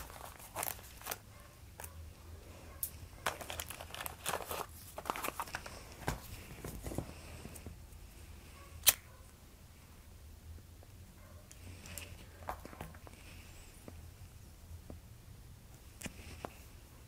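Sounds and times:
cigarette pack crinkling: 0.0 - 1.2, 3.2 - 7.0.

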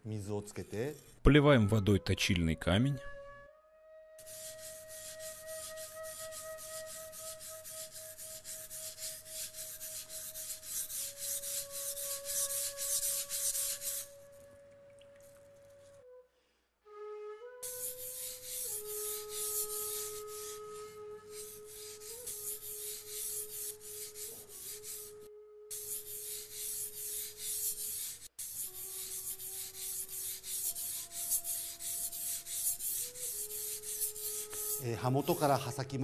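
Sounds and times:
knife rasping on whetstone: 4.2 - 14.2, 17.6 - 25.1, 25.7 - 35.6.

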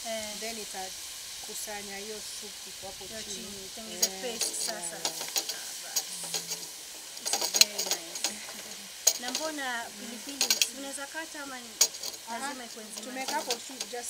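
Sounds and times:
frying sizzle: 0.0 - 14.0
wooden stick scraping metal pot: 4.0 - 10.8, 11.8 - 14.0.

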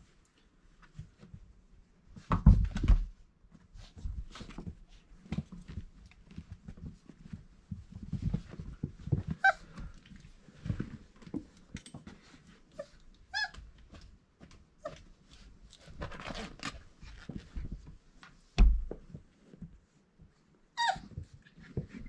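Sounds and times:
scuffling and small bumps: 0.1 - 20.5
puppies squealing: 12.8 - 13.6, 20.8 - 21.1
loud thump: 18.6 - 19.0.

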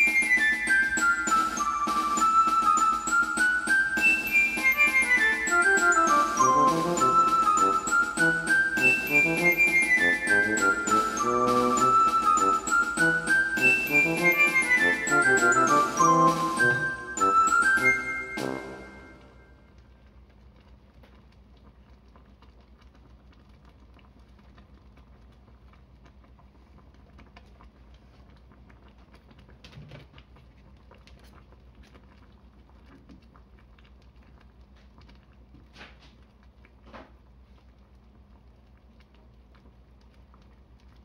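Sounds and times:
curry bubbles popping: 20.0 - 41.0.

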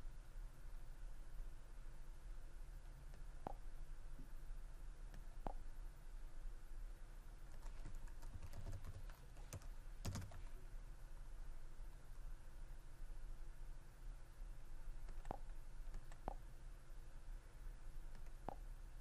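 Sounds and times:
low steady hum: 0.0 - 19.0
typing on keyboard: 7.5 - 10.5, 15.0 - 16.4.

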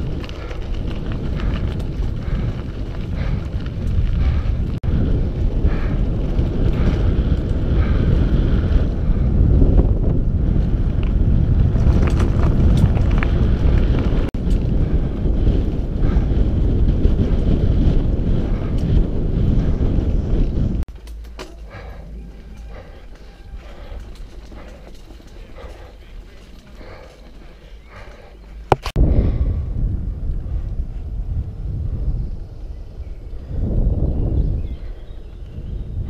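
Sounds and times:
bike clicks and rattles: 0.0 - 29.0
low rumble of bike on gravel: 0.0 - 36.0
wind buffeting microphone: 0.0 - 36.0.

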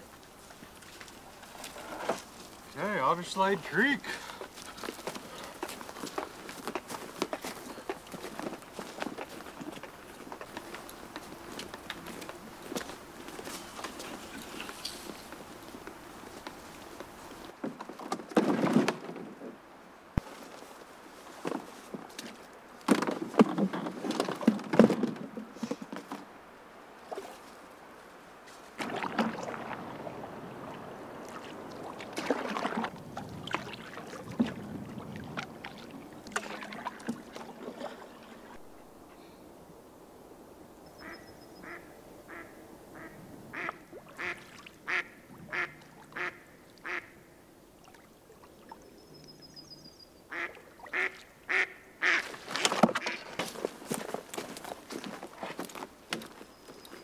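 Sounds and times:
canoe paddling knocks and water: 0.0 - 26.4, 27.0 - 27.6, 28.5 - 38.8, 50.3 - 57.0
duck quacking: 41.0 - 47.1, 50.3 - 52.3.

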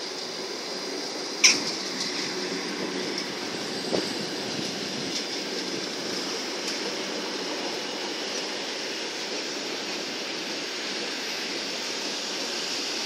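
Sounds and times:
freight train wheels on rails: 0.0 - 13.0.

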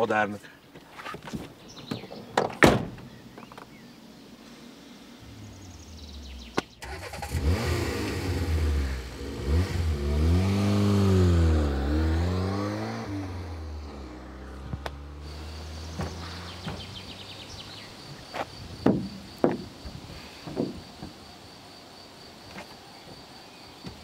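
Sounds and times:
car door slamming: 1.8 - 3.2, 15.8 - 17.4
car engine driving away: 3.1 - 18.4.

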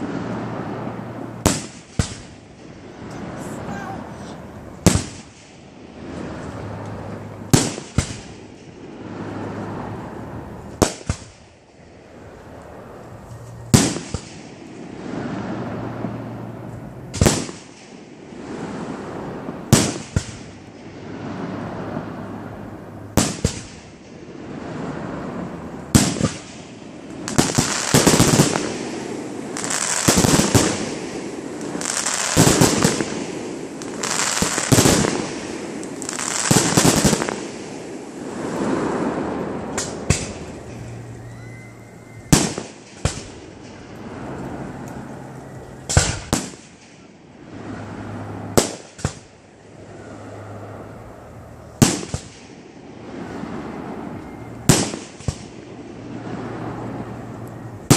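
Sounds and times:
crackling firework spray: 0.0 - 57.9
sharp firework bangs with echo: 1.4 - 2.6, 4.8 - 6.4, 7.5 - 9.4, 10.8 - 11.4, 13.7 - 15.8, 17.1 - 21.9, 23.1 - 40.8, 42.3 - 44.2, 45.9 - 47.1, 48.6 - 49.3, 51.8 - 52.6, 54.7 - 55.7
firework shells bursting: 25.8 - 41.2.

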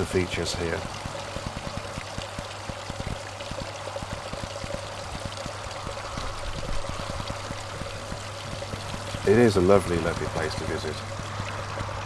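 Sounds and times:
droplet splashes: 0.0 - 12.0
water trickling into pool: 0.0 - 12.0.

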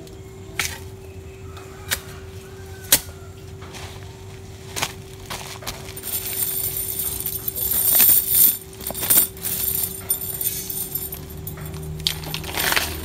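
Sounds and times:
metal chain jingling: 6.0 - 13.0.

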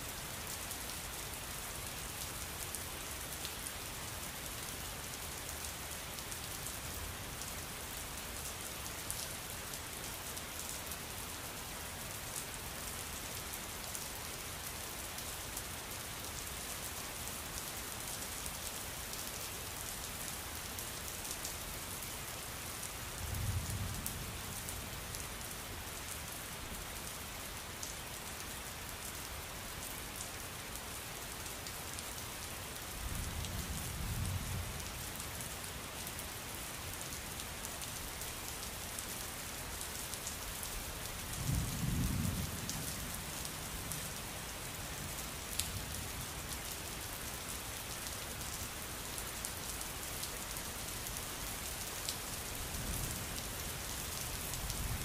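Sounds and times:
rain hissing on surfaces: 0.0 - 55.0
sharp ticks of rain: 0.0 - 55.0.

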